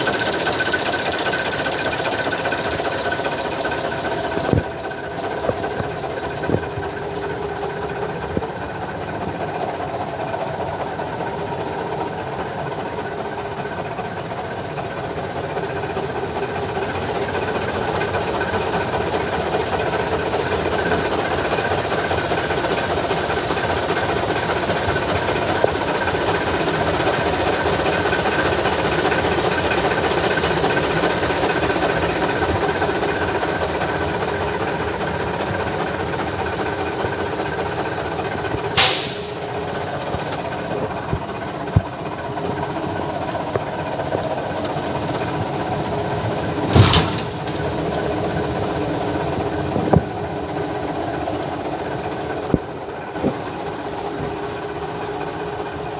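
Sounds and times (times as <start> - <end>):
diesel truck engine idling: 0.0 - 55.9
short loud noise bursts: 38.8 - 39.5.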